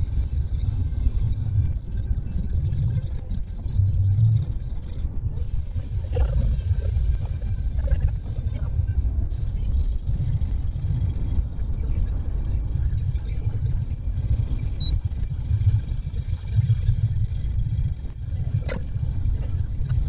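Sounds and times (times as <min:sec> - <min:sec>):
car engine rumble: 0:00.0 - 0:20.0.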